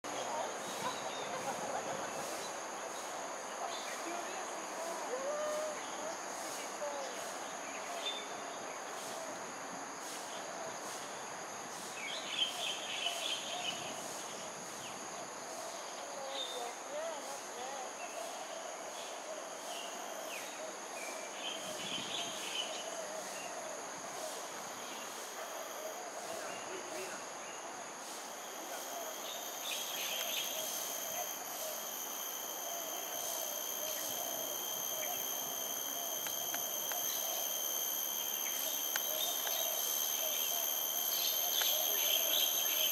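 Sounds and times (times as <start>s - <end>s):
crickets trilling: 0.1s - 42.9s
short insect chirps: 0.1s - 42.9s
high chirping calls: 28.4s - 42.9s.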